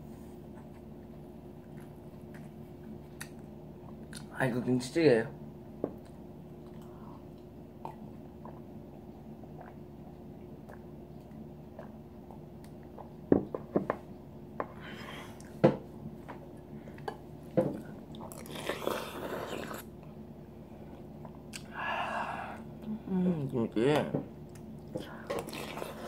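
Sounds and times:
steady low hum: 0.0 - 26.0
mouth sounds of eating: 6.6 - 13.2, 17.8 - 20.0, 21.3 - 26.0.

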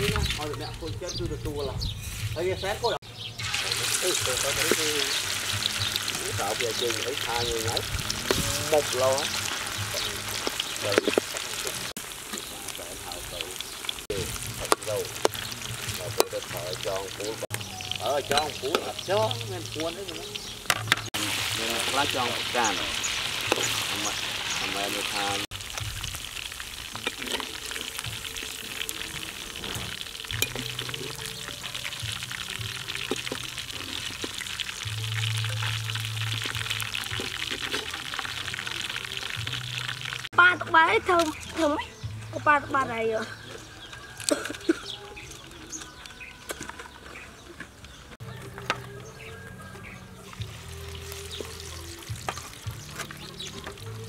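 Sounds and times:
background music low notes: 0.0 - 54.0
meat deep-frying in hot oil: 3.0 - 40.3, 50.2 - 54.0
oil crackles and pops: 3.4 - 40.4, 43.9 - 49.0, 50.2 - 54.0.

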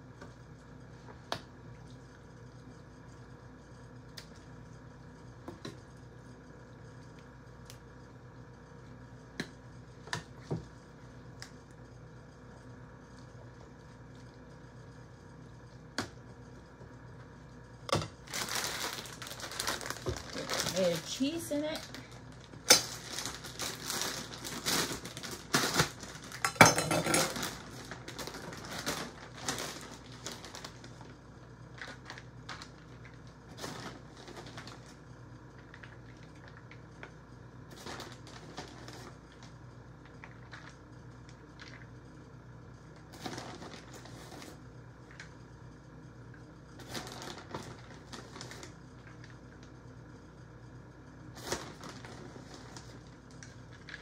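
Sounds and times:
foil pan crinkling: 18.1 - 35.0, 37.7 - 39.5, 43.1 - 44.6, 46.8 - 49.4, 51.4 - 54.0
plastic bag rustling: 18.1 - 37.1, 37.7 - 40.8, 43.1 - 45.2, 46.8 - 49.6, 51.3 - 54.0.

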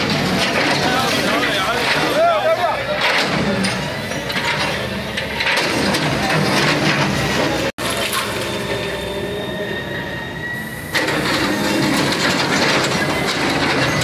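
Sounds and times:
rubble crunching and clattering: 0.0 - 8.4
excavator engine and hydraulic whine: 0.0 - 14.0.

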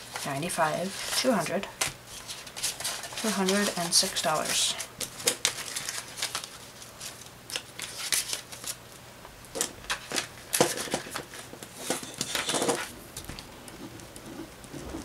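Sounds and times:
paper and plastic rustling: 0.0 - 8.8, 9.5 - 15.0.

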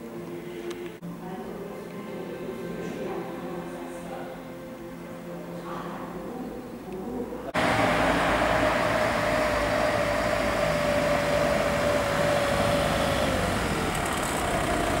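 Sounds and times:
car passing by: 7.5 - 15.0.

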